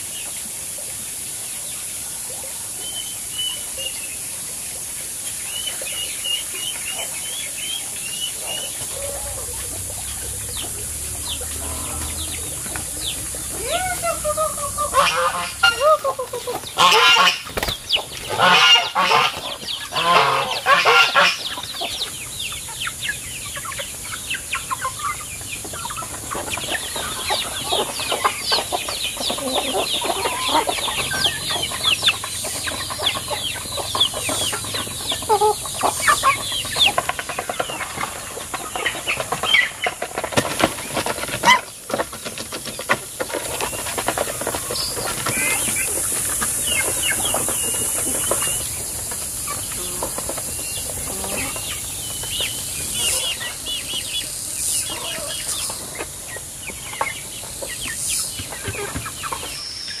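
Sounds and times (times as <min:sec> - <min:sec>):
steady high hiss: 0:00.0 - 0:37.4
chickens clucking: 0:00.0 - 1:00.0
chicks peeping: 0:00.0 - 1:00.0.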